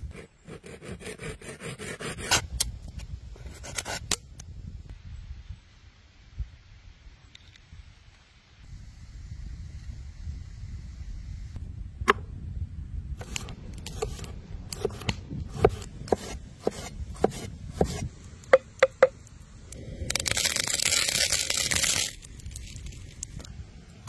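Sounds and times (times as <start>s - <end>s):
cleaver chopping on wooden board: 14.8s - 18.0s.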